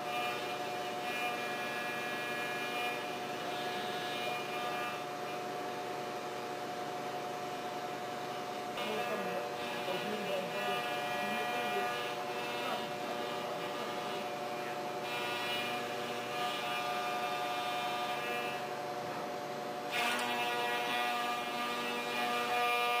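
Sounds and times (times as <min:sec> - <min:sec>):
milling machine whine: 0:00.0 - 0:23.0.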